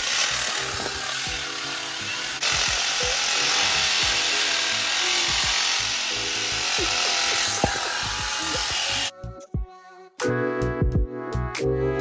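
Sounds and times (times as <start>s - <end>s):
power ratchet whirring: 0.0s - 9.1s
background music: 0.0s - 12.0s.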